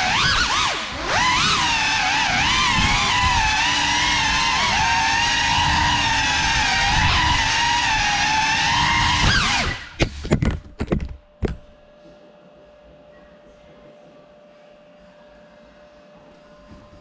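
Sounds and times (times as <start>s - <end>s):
drone motors whining: 0.0s - 11.8s.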